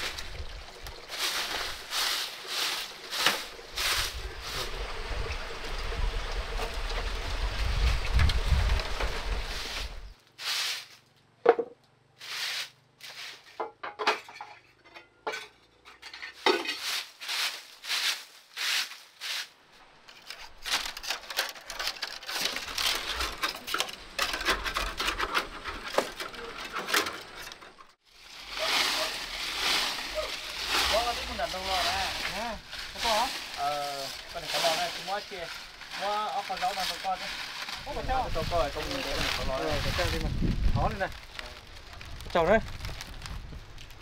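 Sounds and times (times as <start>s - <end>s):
broom sweeping concrete floor: 1.1s - 4.8s, 9.2s - 11.0s, 12.2s - 13.6s, 16.3s - 19.6s, 28.1s - 40.2s.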